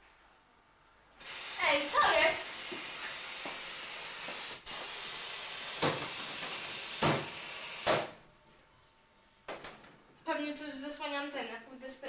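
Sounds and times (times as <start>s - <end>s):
television static hiss: 0.0s - 6.4s.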